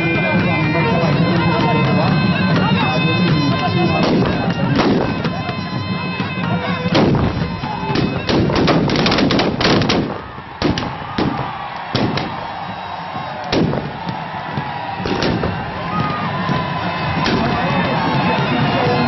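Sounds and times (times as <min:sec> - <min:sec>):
music: 0:00.0 - 0:19.0
gunshots: 0:04.0 - 0:05.2, 0:06.9 - 0:12.4, 0:13.4 - 0:14.1, 0:15.0 - 0:15.7, 0:17.2 - 0:17.7.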